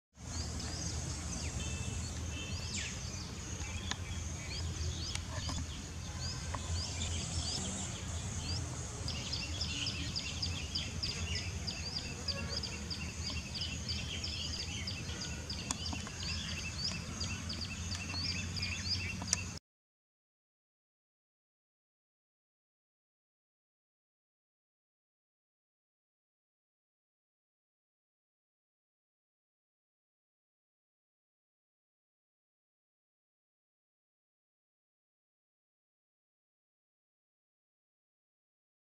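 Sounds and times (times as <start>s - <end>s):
small birds chirping: 0.2s - 19.6s.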